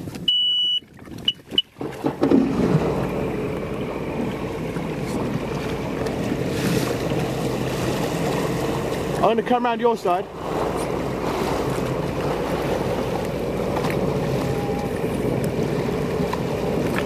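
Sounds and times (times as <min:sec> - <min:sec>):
jet ski engine starting and idling: 0:00.0 - 0:17.0
electronic beeps: 0:00.3 - 0:01.7.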